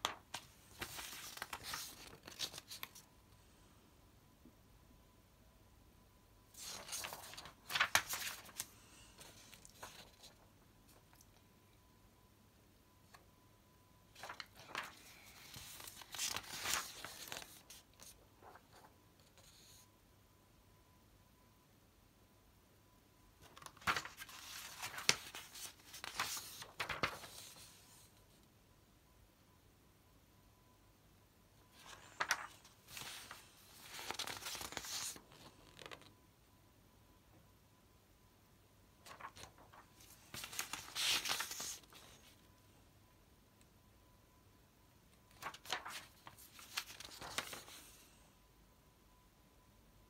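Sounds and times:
paper rustling and crinkling: 0.0 - 3.1, 6.6 - 11.3, 14.2 - 19.6, 23.4 - 28.1, 31.8 - 36.1, 39.0 - 42.4, 45.3 - 48.2.

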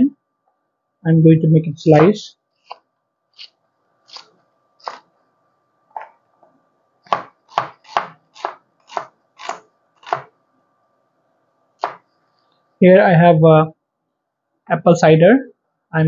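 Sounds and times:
knife slicing onion on cutting board: 4.1 - 5.1, 7.1 - 10.3, 11.8 - 12.0.

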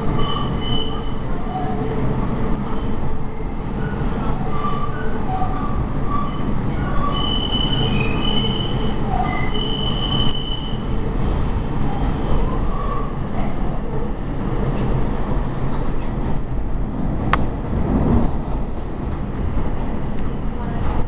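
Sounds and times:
wheels squealing on rails: 0.0 - 14.1
subway car rumbling: 0.0 - 21.0.

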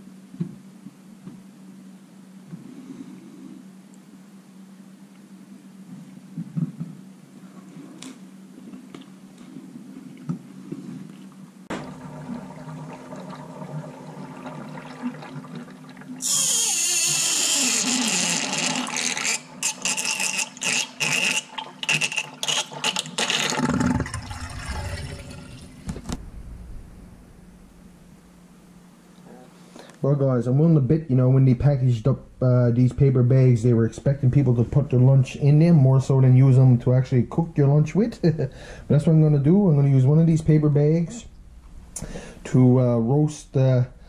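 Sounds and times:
tap water pouring into metal sink: 18.0 - 26.0.

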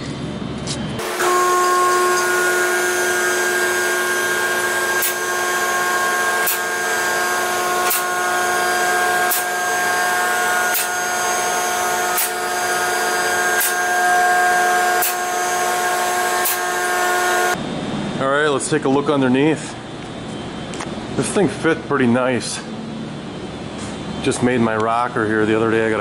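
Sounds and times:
hydraulic pump motor whining: 1.0 - 17.6.

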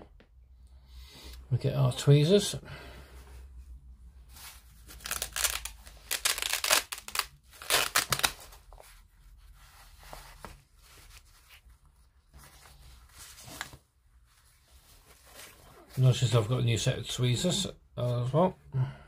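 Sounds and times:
cloth rustling and scraping: 3.2 - 16.5.

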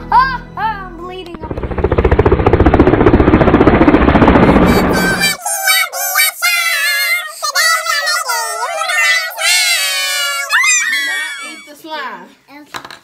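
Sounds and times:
loud noisy blare: 1.4 - 5.4
high-pitched voices singing jingle: 4.8 - 11.7.

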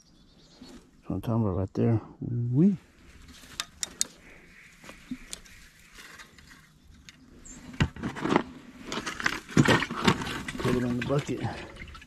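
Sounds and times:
scraping and splashing: 7.6 - 12.0.

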